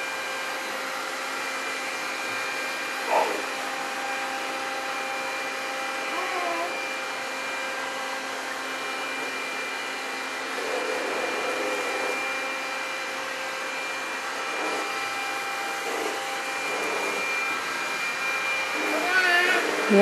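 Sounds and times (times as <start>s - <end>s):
thin high whine: 8.8s - 20.0s
robot mop motor whirring: 14.1s - 20.0s.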